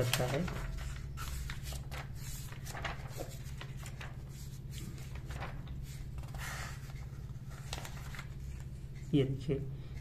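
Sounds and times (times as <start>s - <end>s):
book pages turning: 0.0s - 9.1s.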